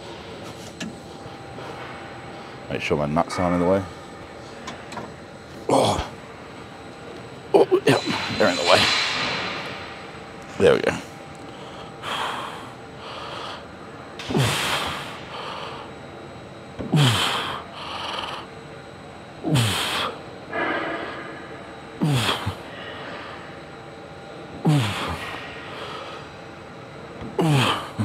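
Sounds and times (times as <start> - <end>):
man grunting exhalations: 22.0 - 22.7.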